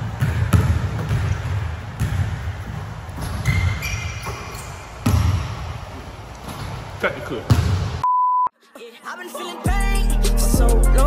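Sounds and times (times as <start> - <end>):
basketball bouncing on wood floor: 0.0 - 5.7, 7.5 - 8.0
short high squeak: 3.4 - 4.8.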